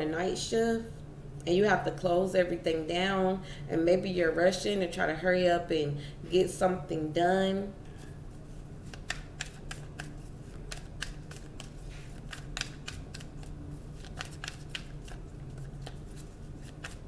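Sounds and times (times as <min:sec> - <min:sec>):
low steady hum: 0:00.0 - 0:17.0
cards shuffling with crisp clicks: 0:08.8 - 0:17.0.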